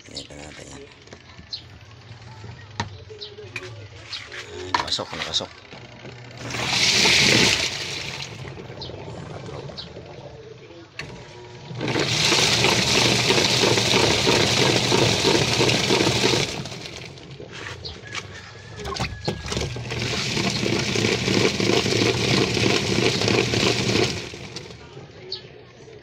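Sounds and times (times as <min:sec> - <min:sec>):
washing machine churning water: 0:04.7 - 0:25.0.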